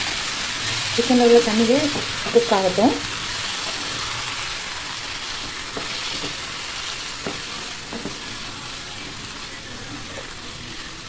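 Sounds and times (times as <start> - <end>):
chicken sizzling in a pan: 0.0 - 11.0
spatula knocking against pan: 7.2 - 8.2.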